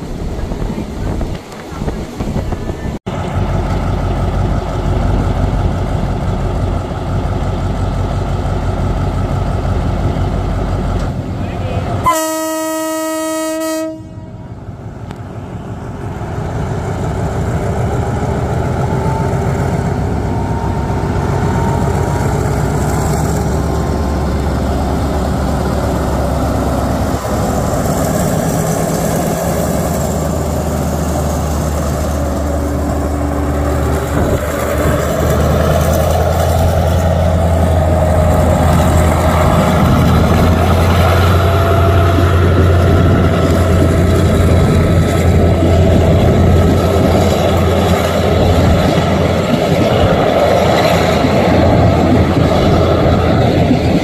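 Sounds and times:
diesel train engine rumble: 0.0s - 54.0s
train horn blast: 12.0s - 14.5s.

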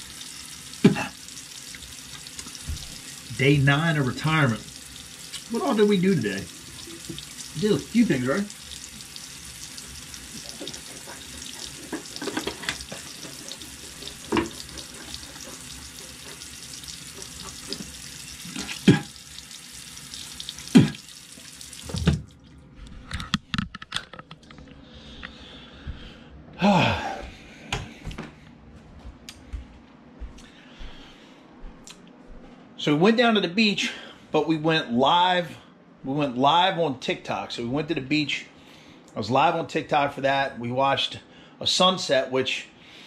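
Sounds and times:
sink tap running: 0.0s - 22.4s.

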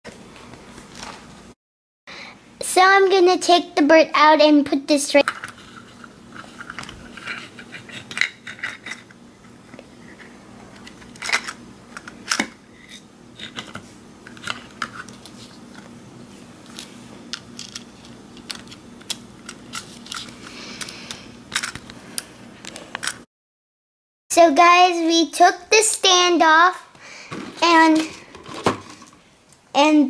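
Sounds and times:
plastic toy parts clicking and knocking: 21.5s - 21.9s.

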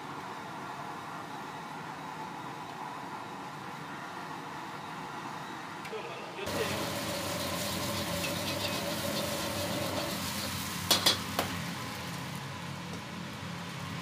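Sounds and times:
egg sizzling in a wok: 6.5s - 12.8s.

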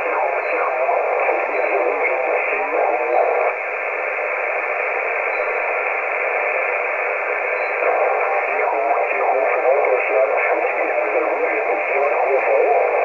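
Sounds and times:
garbled radio voice: 0.0s - 3.6s, 7.4s - 13.0s
radio static hiss: 0.0s - 13.0s.

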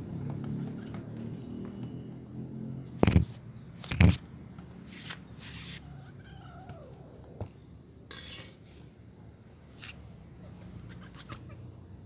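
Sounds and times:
cat meowing: 5.8s - 7.4s, 10.7s - 11.7s.

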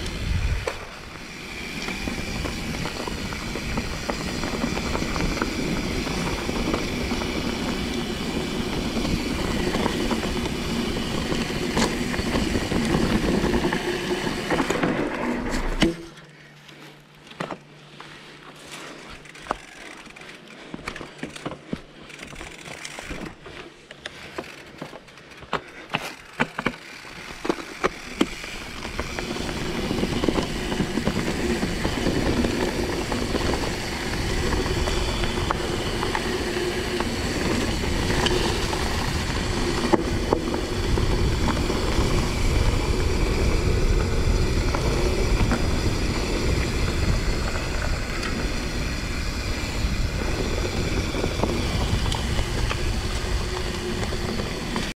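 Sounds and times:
wind rushing over microphone: 0.0s - 14.5s, 28.7s - 54.9s
bike tyres rumbling: 0.0s - 55.0s.

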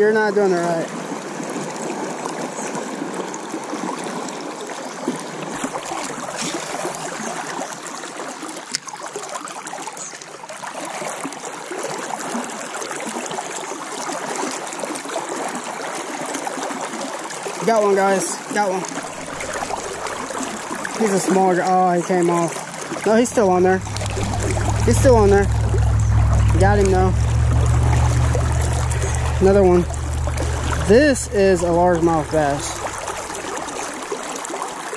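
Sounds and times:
river water flowing over riffles: 0.0s - 34.9s.

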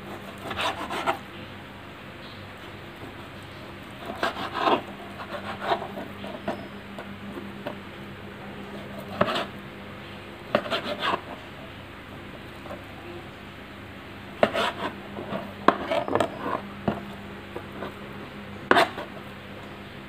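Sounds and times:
knife slicing on cutting board: 14.4s - 16.6s, 18.7s - 19.0s.

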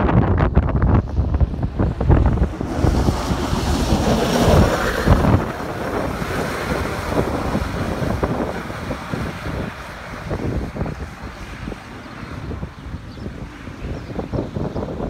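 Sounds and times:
wind buffeting microphone: 0.0s - 15.0s
tyres rushing through slush: 1.3s - 12.8s.

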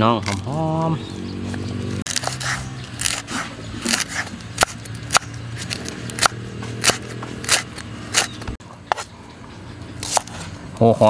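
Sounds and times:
knife chopping on wooden board: 2.1s - 9.1s.

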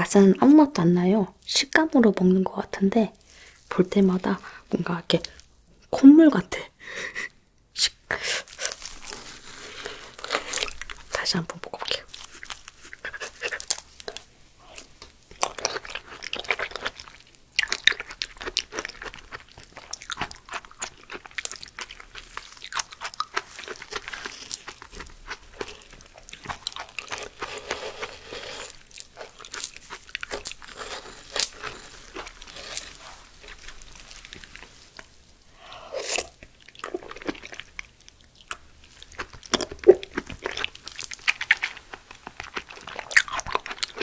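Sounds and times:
chewing aloe gel: 8.4s - 44.0s
metal spoon scraping leaf: 27.2s - 28.8s, 30.3s - 34.1s.

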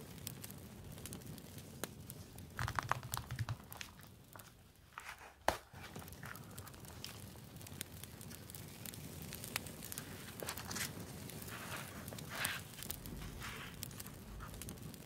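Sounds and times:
paper rustling: 10.2s - 14.5s.

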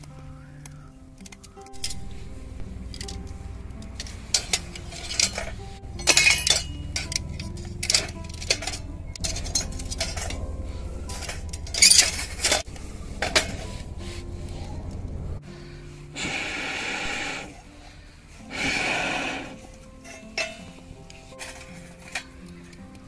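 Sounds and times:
background music: 0.0s - 23.0s
cutlery clinking against metal stove: 1.2s - 15.1s, 18.4s - 23.0s
metal scraping: 1.2s - 23.0s.

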